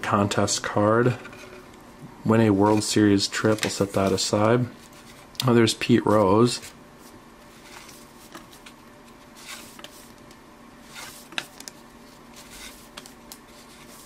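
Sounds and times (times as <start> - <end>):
faint steady hum: 0.0 - 14.0
papery swishes of cards: 9.4 - 10.2, 10.8 - 14.0.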